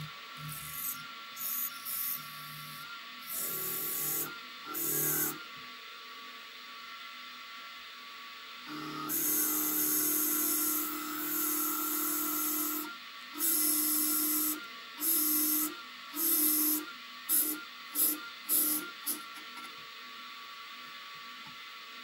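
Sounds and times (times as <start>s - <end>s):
milling cutter hissing on steel: 0.0s - 5.4s, 9.0s - 19.3s.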